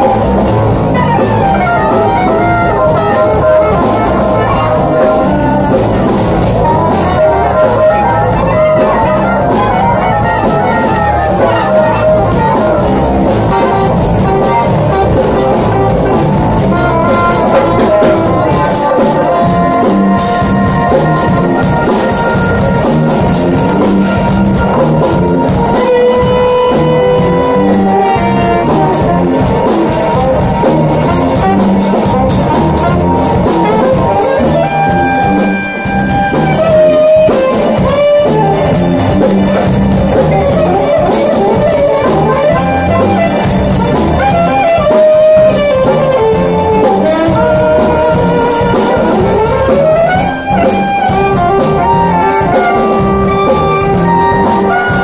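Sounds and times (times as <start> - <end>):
alto saxophone melody: 0.0 - 55.0
bass: 0.0 - 55.0
drum kit: 0.0 - 55.0
electric keyboard: 0.0 - 55.0.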